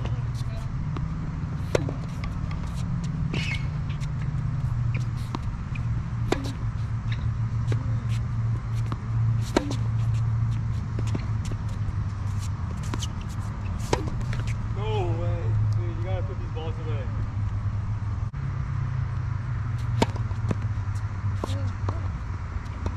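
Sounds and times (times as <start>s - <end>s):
racket striking ball: 0.0s - 14.8s, 19.7s - 22.9s
ball bouncing: 0.9s - 11.9s, 13.9s - 14.6s, 19.8s - 20.7s.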